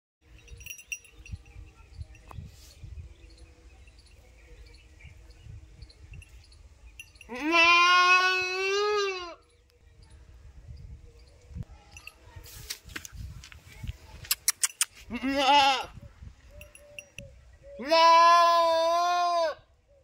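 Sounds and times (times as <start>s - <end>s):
goat bleating: 7.3s - 9.4s, 15.1s - 15.9s, 17.8s - 19.6s.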